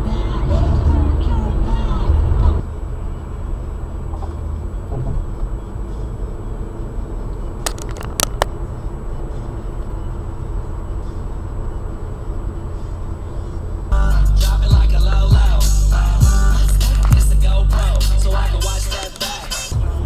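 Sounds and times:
car cabin road drone: 0.0 - 20.0
sharp clicks: 7.6 - 8.6, 18.7 - 19.6
music with heavy beat: 14.0 - 20.0.

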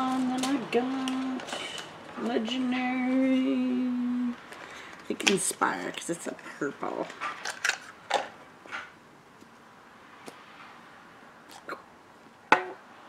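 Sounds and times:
breathy mouth sounds: 11.5 - 11.9.

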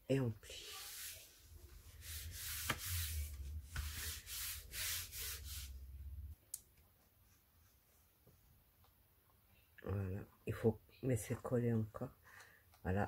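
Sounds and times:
hands swishing on cardstock: 0.7 - 5.8.

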